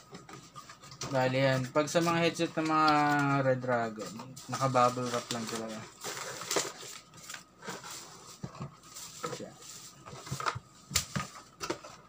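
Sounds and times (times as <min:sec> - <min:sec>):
bubble wrap crinkling: 0:04.4 - 0:10.5.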